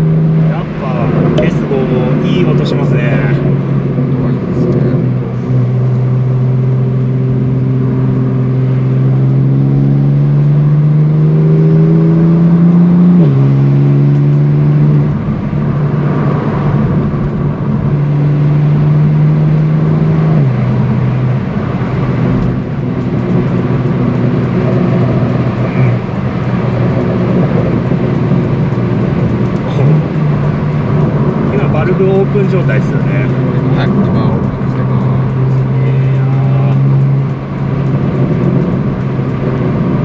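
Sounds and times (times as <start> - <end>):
car engine accelerating: 0.0 - 40.0.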